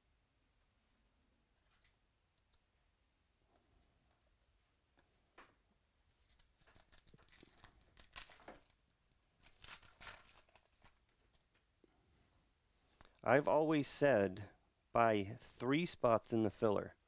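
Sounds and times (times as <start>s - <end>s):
foil wrapper crinkling and tearing: 6.2s - 8.8s, 9.4s - 11.4s.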